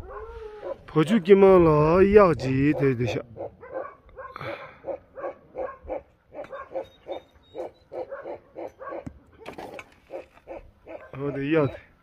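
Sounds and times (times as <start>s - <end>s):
dog barking rapidly: 2.6s - 11.6s.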